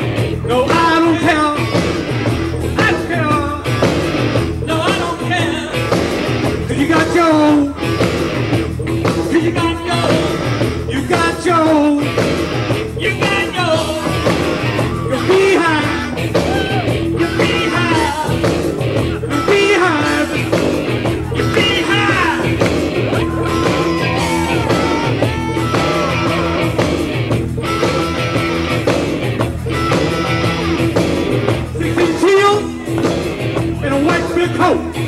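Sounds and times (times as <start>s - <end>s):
live rock band playing: 0.0s - 35.0s
man singing: 0.3s - 2.0s, 2.6s - 7.9s, 9.1s - 12.2s, 12.9s - 26.8s, 31.6s - 35.0s.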